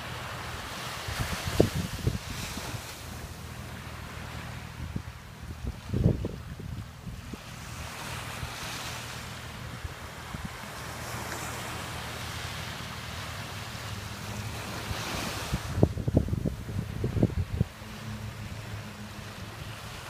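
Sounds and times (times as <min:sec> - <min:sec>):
distant floatplane engine drone: 0:00.0 - 0:20.0
surf: 0:00.0 - 0:20.0
wind: 0:00.0 - 0:20.0
wind buffeting microphone: 0:00.9 - 0:03.6, 0:04.2 - 0:11.3, 0:12.6 - 0:20.0.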